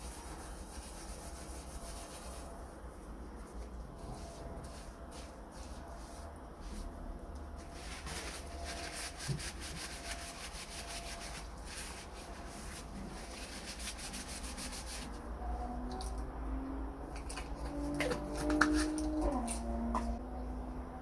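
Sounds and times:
paper towel rubbing metal: 0.0 - 2.7, 4.0 - 6.9, 7.6 - 15.2.

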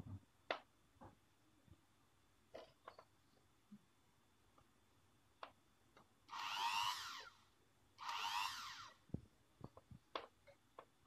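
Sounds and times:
wire stripping machine motor: 6.3 - 7.3, 8.0 - 9.0.

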